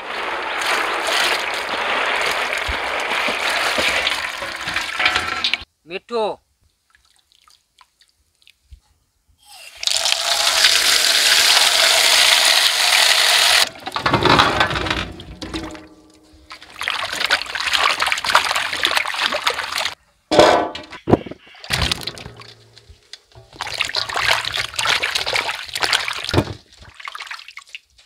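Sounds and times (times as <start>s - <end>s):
vegetables swished in water: 0.0s - 5.0s
rushing water: 0.0s - 5.6s, 16.4s - 20.0s, 23.4s - 27.9s.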